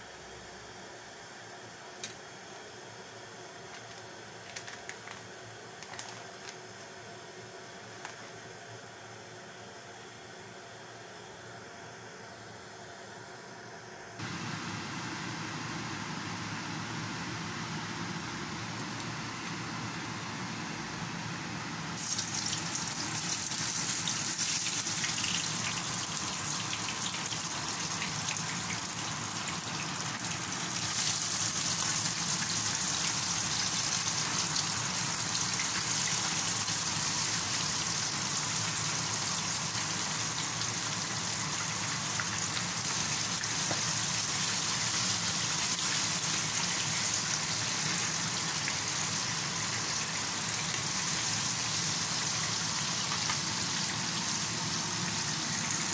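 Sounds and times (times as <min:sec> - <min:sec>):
fish frying in hot oil: 0:22.0 - 0:55.9.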